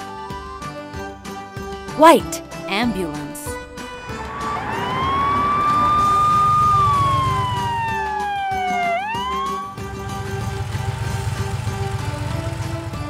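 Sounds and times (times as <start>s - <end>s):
ambulance siren wailing: 4.7s - 9.4s.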